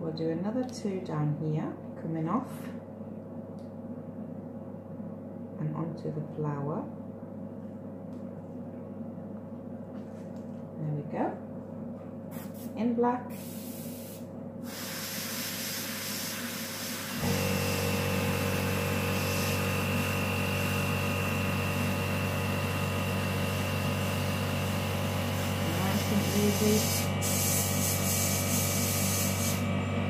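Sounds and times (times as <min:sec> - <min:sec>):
airbrush spraying air hiss: 0:12.3 - 0:29.6
compressor motor humming: 0:13.4 - 0:30.0.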